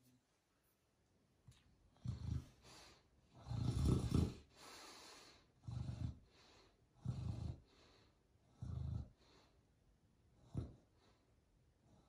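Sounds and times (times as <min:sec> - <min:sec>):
dog snoring: 0:01.9 - 0:09.5
soft breaths: 0:02.0 - 0:12.0.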